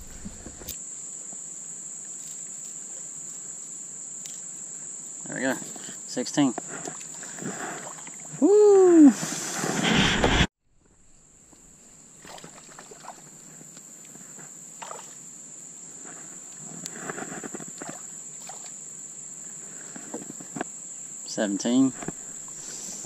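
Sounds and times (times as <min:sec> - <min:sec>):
handling noise rustle: 0:00.0 - 0:00.8
insect chirring: 0:00.0 - 0:08.9, 0:10.8 - 0:23.0.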